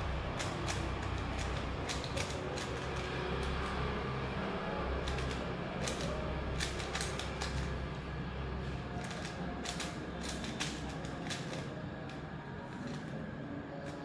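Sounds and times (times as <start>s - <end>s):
puzzle cube plastic clicks: 0.2s - 3.9s, 5.0s - 7.8s, 8.6s - 13.2s.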